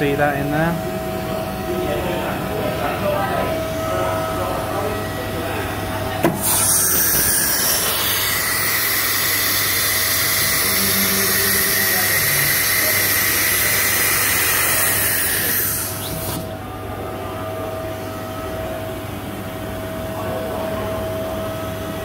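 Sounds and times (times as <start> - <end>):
low machine hum: 0.0 - 22.0
compressed air hissing: 6.2 - 16.5.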